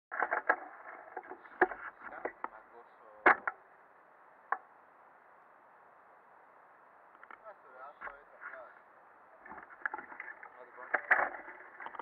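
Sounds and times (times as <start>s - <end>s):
faint steady hiss: 0.1s - 12.0s.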